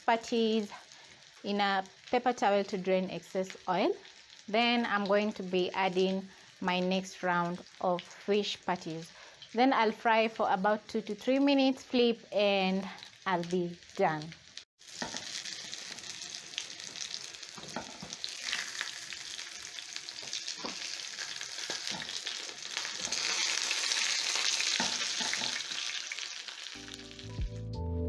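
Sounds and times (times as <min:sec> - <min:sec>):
patties sizzling in oil: 0:00.0 - 0:27.4
background music: 0:26.8 - 0:28.0.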